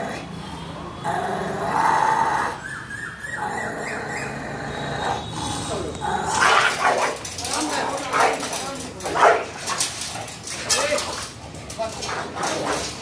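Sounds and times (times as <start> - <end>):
dog growling: 1.0 - 2.6, 3.3 - 11.2
dog whining squeals: 1.8 - 6.6.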